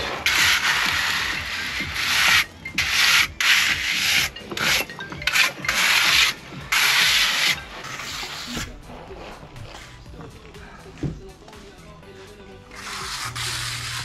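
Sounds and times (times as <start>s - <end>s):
trowel scraping gritty stone: 0.0s - 10.0s, 12.7s - 14.0s.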